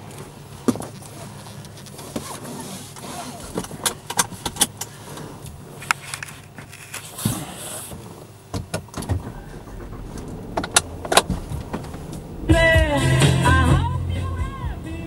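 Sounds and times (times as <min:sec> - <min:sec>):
sharp clicks and rustles: 0:00.1 - 0:12.6
low rumble: 0:09.0 - 0:15.0
soft hiss: 0:09.0 - 0:15.0.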